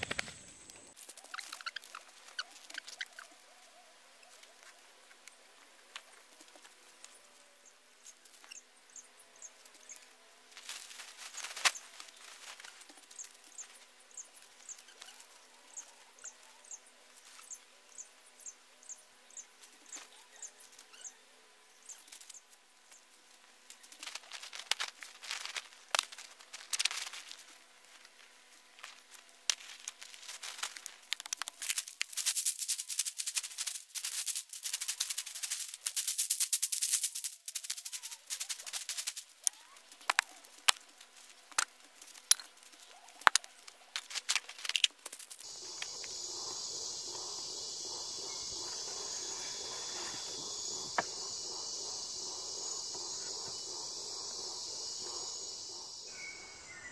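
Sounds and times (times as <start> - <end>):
high insect chirps: 0.0 - 3.4, 6.8 - 56.9
feet crunching dry leaves: 24.0 - 27.6, 28.8 - 40.5.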